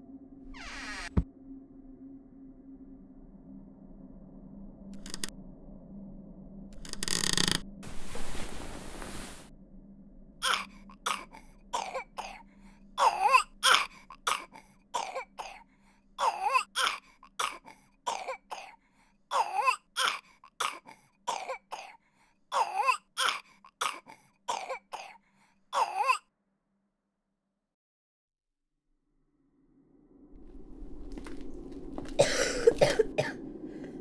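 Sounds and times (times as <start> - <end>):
child coughing: 10.4 - 25.2, 25.8 - 26.2, 32.2 - 33.4.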